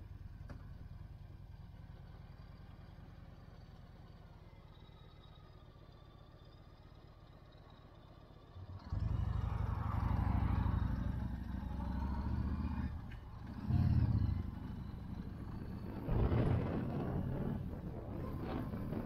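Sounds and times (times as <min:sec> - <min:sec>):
motorcycle engine rumbling: 0:08.2 - 0:19.0.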